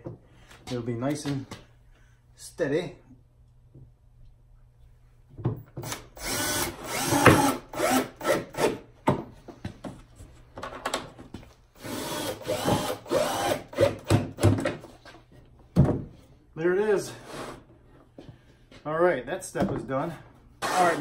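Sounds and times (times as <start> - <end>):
cordless drill driving screws: 5.8 - 8.8, 11.8 - 14.1, 20.6 - 21.0.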